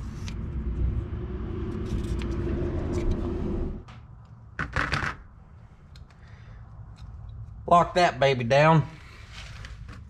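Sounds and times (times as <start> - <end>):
mechanical hum and rumble: 0.0 - 8.0.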